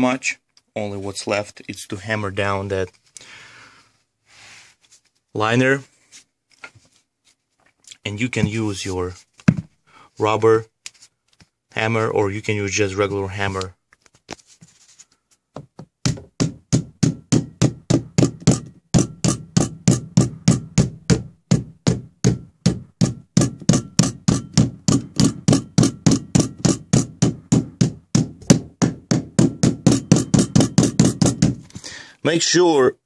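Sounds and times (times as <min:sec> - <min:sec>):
rubber mallet blows on metal strip: 0:16.0 - 0:31.8.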